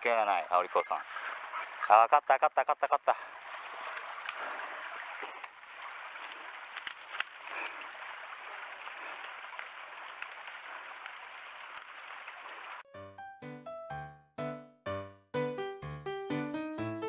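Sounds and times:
dry grass and brush rustling: 3.3s - 12.8s
light twig snaps: 6.2s - 7.9s.

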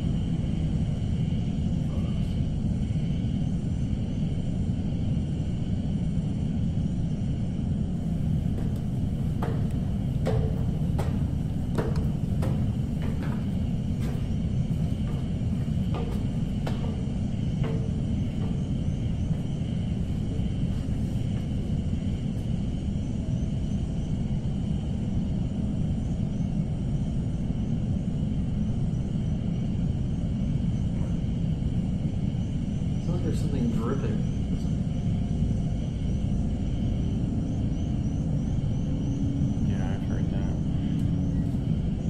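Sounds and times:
steady low rumble: 0.0s - 42.0s
footsteps climbing stairs: 8.0s - 22.6s.

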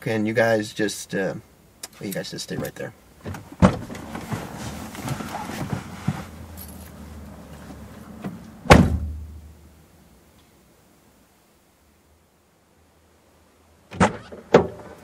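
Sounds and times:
car door thump: 3.2s - 4.4s, 8.2s - 9.2s
clothes rustling: 3.5s - 8.2s.

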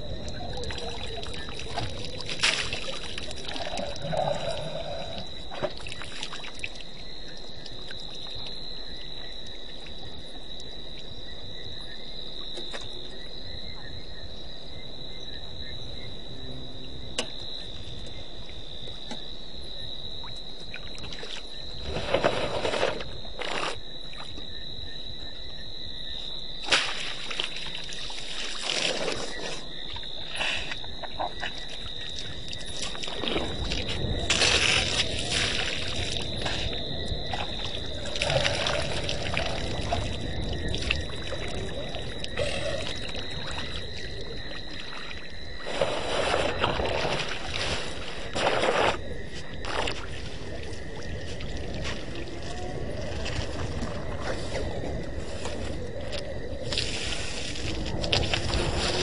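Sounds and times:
high-pitched insect trill: 0.0s - 59.0s
water splashing from elephant trunk: 0.5s - 4.0s, 26.6s - 29.6s, 32.6s - 36.7s.

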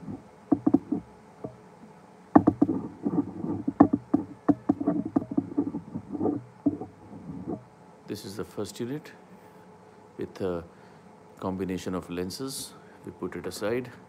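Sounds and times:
plastic eyepiece clicking and scraping: 2.4s - 7.6s.

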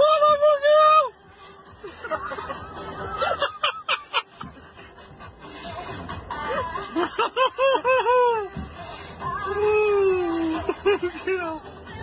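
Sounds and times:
person laughing: 1.8s - 4.5s, 6.5s - 8.5s, 10.3s - 11.6s.

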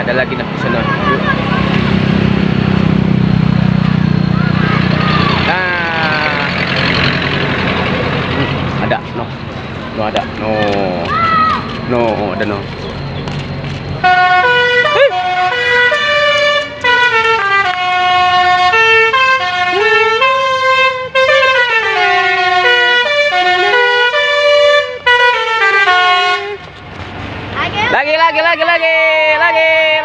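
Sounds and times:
musical bus horn playing a tune: 14.0s - 26.7s.

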